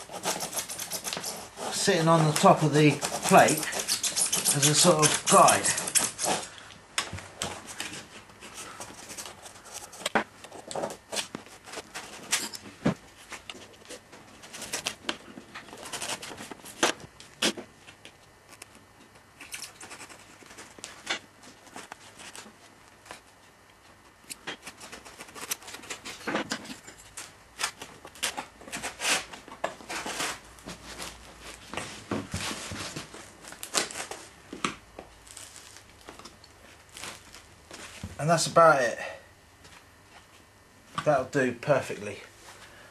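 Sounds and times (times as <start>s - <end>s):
knife scratching through foam: 0.0s - 6.5s.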